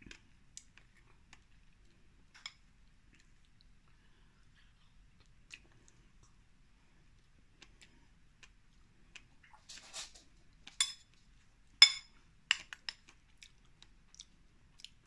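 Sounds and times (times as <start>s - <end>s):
spoon clinking on bowl: 11.8s - 12.1s.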